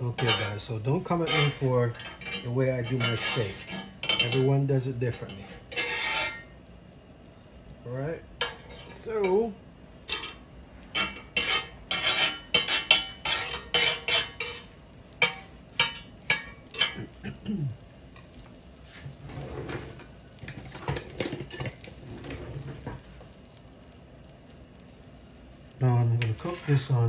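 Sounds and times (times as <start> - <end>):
knife scraping grill pan: 0.1 - 4.5, 5.2 - 6.6, 10.1 - 10.4, 11.0 - 17.1, 26.2 - 27.0.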